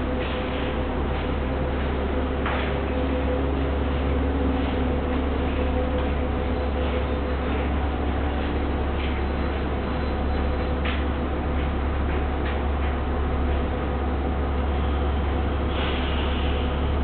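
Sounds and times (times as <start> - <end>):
bus engine low rumble: 0.0 - 17.0.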